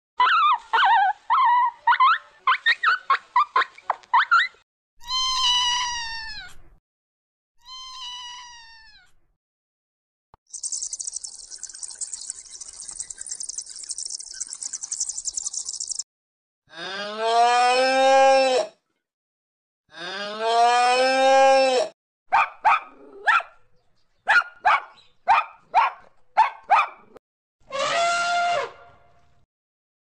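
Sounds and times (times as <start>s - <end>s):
cat meowing: 7.6s - 9.1s
chicks peeping: 10.5s - 16.0s.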